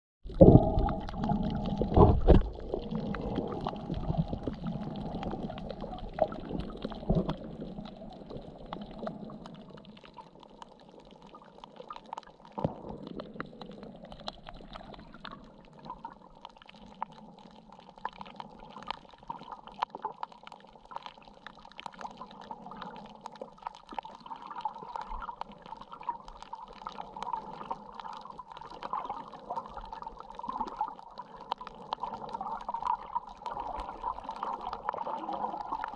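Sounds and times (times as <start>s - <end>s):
small clicks and crackles: 0.3s - 35.9s
muffled underwater noise: 24.1s - 35.9s.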